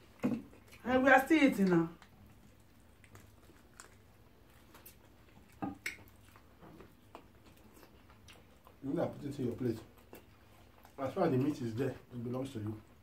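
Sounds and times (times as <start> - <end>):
person chewing food: 0.0 - 0.8, 2.0 - 12.1
wet mouth clicks: 4.8 - 6.5.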